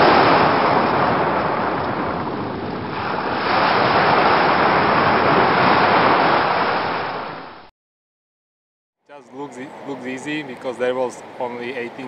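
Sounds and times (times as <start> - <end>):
ocean waves breaking: 0.0 - 7.7.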